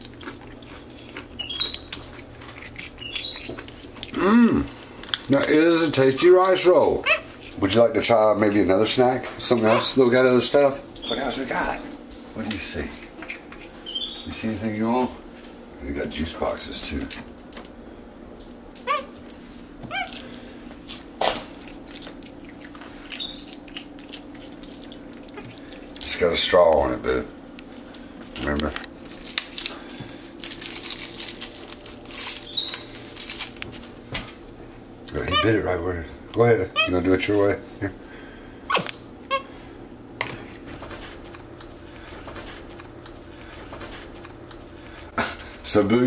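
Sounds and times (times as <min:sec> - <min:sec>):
biting and chewing clicks: 0:00.0 - 0:05.6, 0:21.2 - 0:26.1, 0:40.8 - 0:45.1
faint room hum: 0:00.0 - 0:46.0
monkey squeaky chirps: 0:01.4 - 0:01.9, 0:03.0 - 0:03.6, 0:13.8 - 0:14.3, 0:23.2 - 0:23.7, 0:32.4 - 0:32.9, 0:35.3 - 0:35.6
monkey calls: 0:07.0 - 0:07.3, 0:09.5 - 0:10.0, 0:18.8 - 0:19.2, 0:19.9 - 0:20.1, 0:35.2 - 0:35.6, 0:36.7 - 0:37.0, 0:38.7 - 0:39.5.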